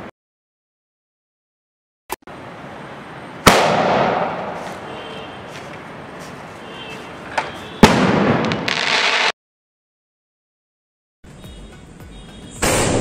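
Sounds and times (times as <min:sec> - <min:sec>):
firework launch bang: 0:03.4 - 0:04.6, 0:07.8 - 0:09.3, 0:12.6 - 0:13.0.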